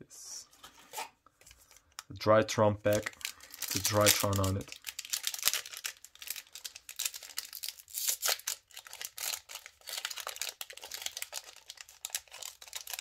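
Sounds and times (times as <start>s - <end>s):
foil wrappers crinkling: 2.8s - 13.0s.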